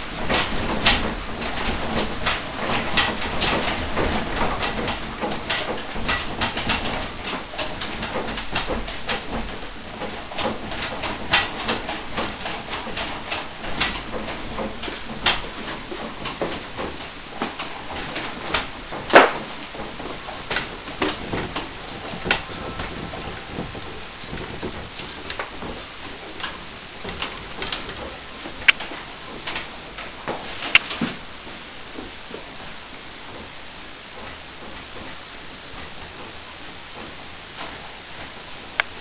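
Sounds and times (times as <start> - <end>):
room rattling and creaking: 0.0 - 39.0
sharp loud knock: 19.1 - 19.5.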